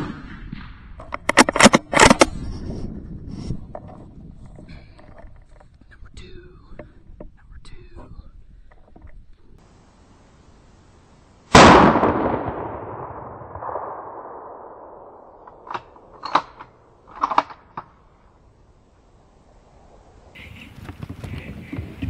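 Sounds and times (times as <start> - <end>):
rifle shot with rolling echo: 0.0 - 1.0, 11.5 - 17.6.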